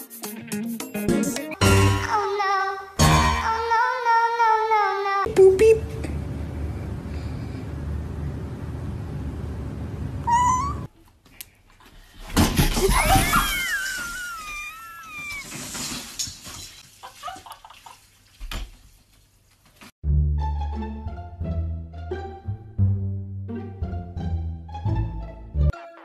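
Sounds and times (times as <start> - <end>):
cat meowing: 10.2 - 10.9.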